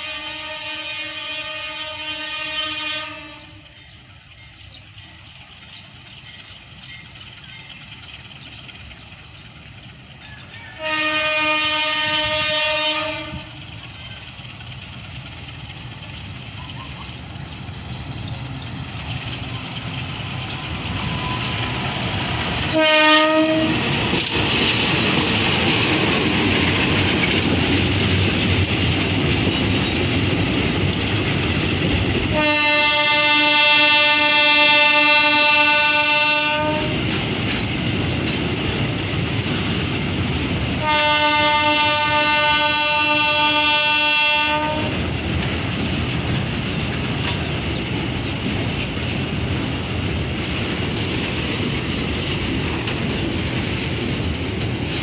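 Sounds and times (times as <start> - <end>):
train horn blasts: 0.0 - 3.7, 10.6 - 13.7, 22.6 - 24.0, 32.3 - 37.1, 40.7 - 45.0
diesel locomotive rumble: 0.0 - 55.0
tank wagons rolling past: 4.3 - 32.3.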